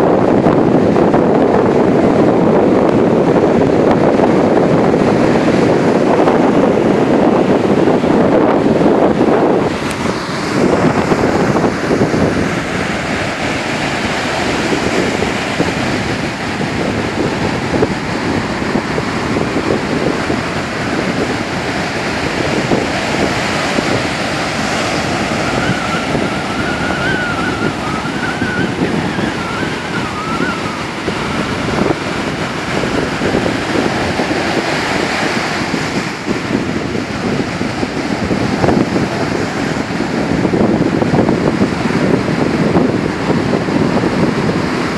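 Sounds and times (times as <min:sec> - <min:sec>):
ocean surf breaking on beach: 0:00.0 - 0:44.9
wind buffeting microphone: 0:00.0 - 0:44.9
faint wavering tone: 0:25.2 - 0:31.6.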